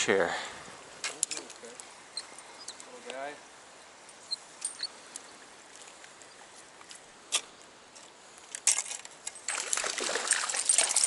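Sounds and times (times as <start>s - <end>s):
river water rushing: 9.5s - 11.0s.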